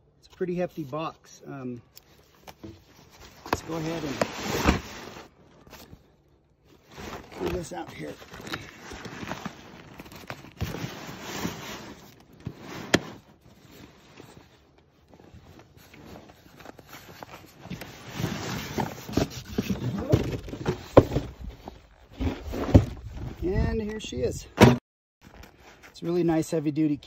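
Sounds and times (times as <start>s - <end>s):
canvas scraping against cardboard: 2.6s - 5.4s, 6.8s - 23.5s.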